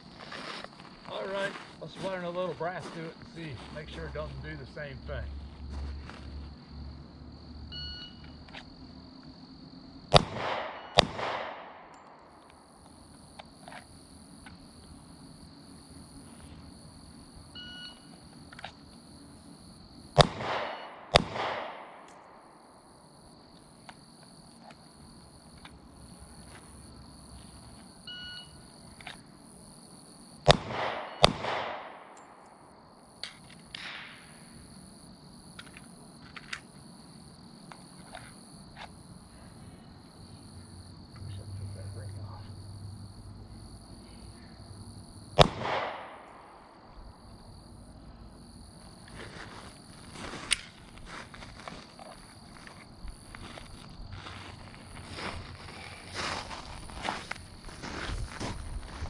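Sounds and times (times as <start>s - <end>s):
insects trilling: 0.0s - 59.0s
pistol shots with echo: 10.1s - 12.4s, 20.2s - 22.6s, 30.5s - 32.6s, 45.4s - 46.8s.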